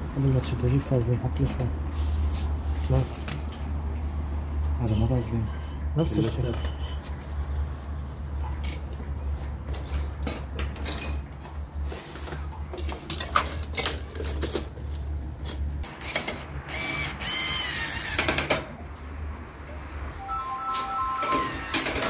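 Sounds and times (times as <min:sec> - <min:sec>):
squeaky scrape: 0:04.9 - 0:07.5.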